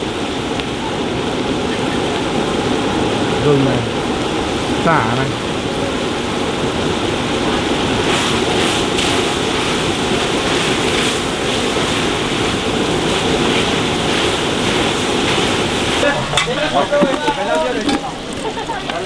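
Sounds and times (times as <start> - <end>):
meat sizzling in a pan: 8.0 - 19.0.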